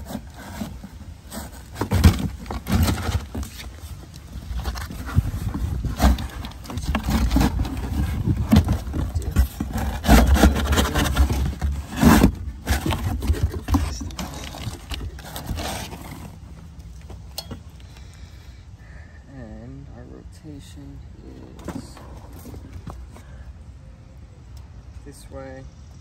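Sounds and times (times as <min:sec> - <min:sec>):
cardboard box scraping and rustling: 0:00.0 - 0:17.2, 0:21.2 - 0:23.4
low rumble of handling noise: 0:00.0 - 0:26.0.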